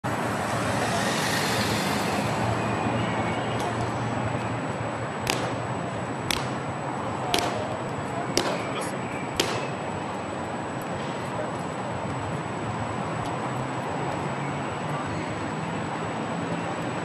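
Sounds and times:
car passing: 0.0s - 6.7s
city traffic noise: 0.0s - 17.0s
boots stamping on paving stones: 8.4s - 9.8s.

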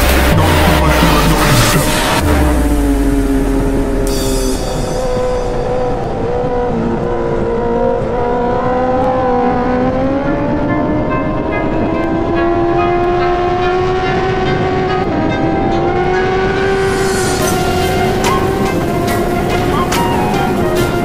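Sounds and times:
thumping music beat: 0.0s - 6.8s, 11.1s - 21.0s
motorcycle engine at high revs: 0.0s - 21.0s.

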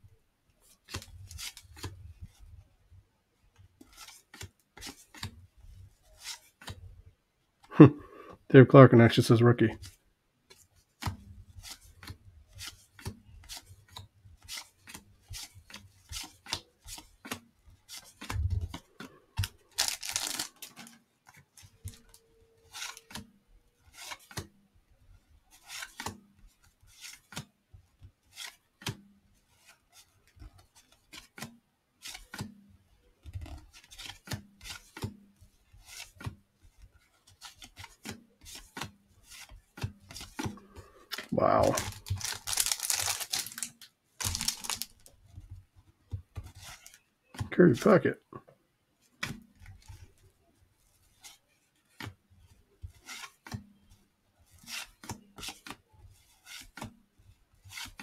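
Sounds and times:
cards flicking and sliding: 3.8s - 5.4s, 10.5s - 23.3s, 23.9s - 24.5s, 25.6s - 26.2s, 30.5s - 32.6s, 33.4s - 35.2s, 37.2s - 45.5s, 52.9s - 53.6s, 54.6s - 55.8s, 56.4s - 56.9s, 57.7s - 58.0s.

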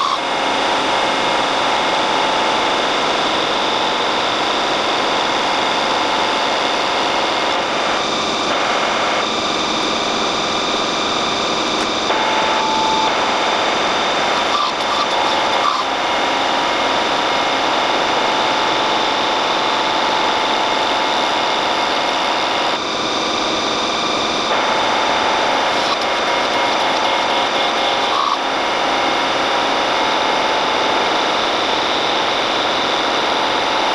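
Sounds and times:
faint whine: 0.0s - 33.9s
metal lathe cutting steel: 0.0s - 33.9s.

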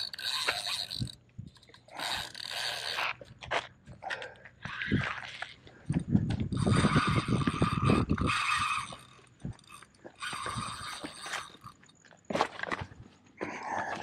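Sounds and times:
fishing reel buzzing: 0.0s - 3.4s, 6.4s - 11.9s.

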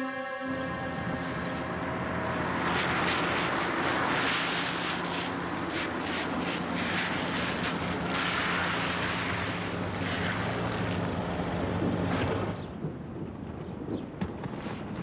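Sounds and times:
tyres hissing on wet pavement: 0.8s - 12.6s.

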